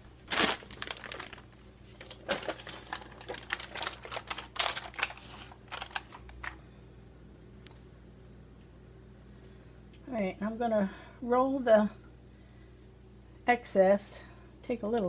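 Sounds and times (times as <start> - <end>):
paper crinkling: 0.2 - 6.6.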